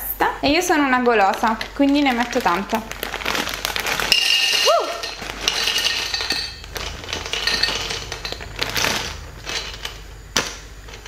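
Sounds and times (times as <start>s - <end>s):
bag rustling: 2.1s - 9.9s
dry pasta clattering on plate: 3.4s - 11.0s.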